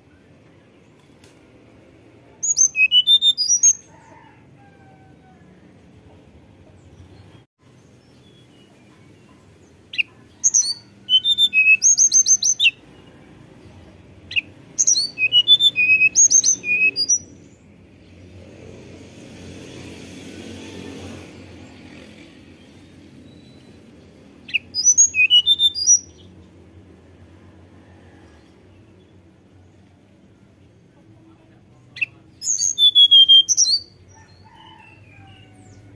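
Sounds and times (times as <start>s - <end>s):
bird singing whistled notes: 2.4s - 3.8s, 9.9s - 12.8s, 14.3s - 17.5s, 23.2s - 23.9s, 24.5s - 26.3s, 31.9s - 34.0s.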